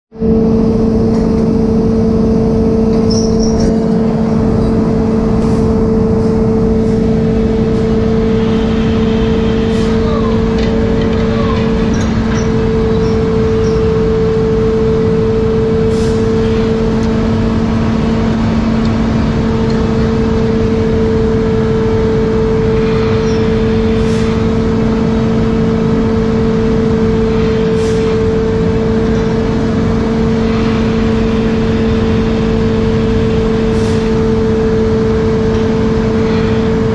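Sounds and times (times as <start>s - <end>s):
ship machinery humming: 0.1s - 36.9s.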